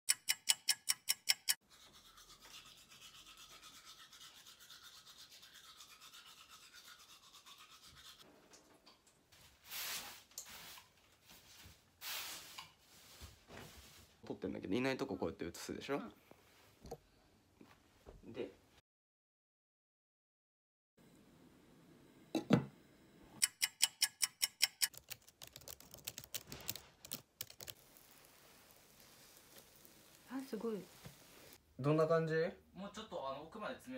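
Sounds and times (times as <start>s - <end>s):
keyboard typing: 0.1s - 1.6s, 23.4s - 27.8s
sharp clicks: 0.1s - 1.6s, 23.4s - 25.6s
toothbrush scrubbing teeth: 0.7s - 8.2s, 23.6s - 31.6s
rustling noise: 9.4s - 14.2s, 26.3s - 31.6s.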